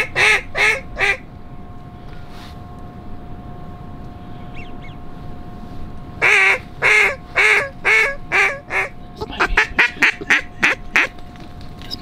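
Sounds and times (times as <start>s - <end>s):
duck quacking: 0.0s - 1.2s, 6.2s - 11.1s.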